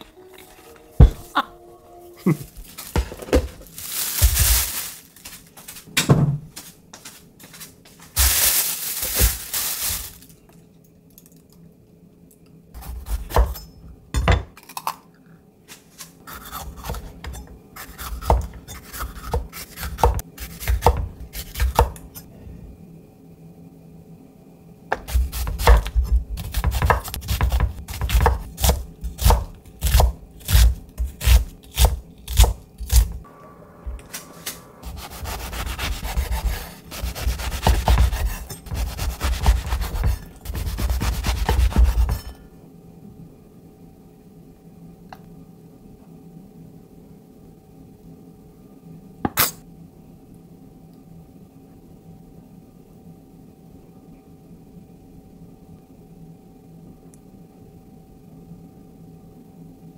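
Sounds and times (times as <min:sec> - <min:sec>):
knife chopping on wooden board: 0:18.1 - 0:22.0, 0:24.9 - 0:33.1, 0:34.9 - 0:42.3
hissing noise: 0:33.3 - 0:35.6.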